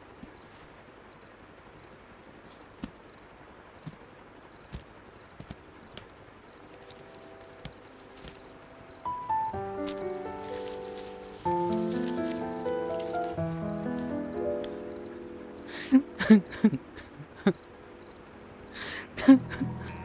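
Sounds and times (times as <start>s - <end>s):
crickets chirping: 0.0s - 20.0s
low hiss: 0.0s - 20.0s
background music: 6.8s - 20.0s.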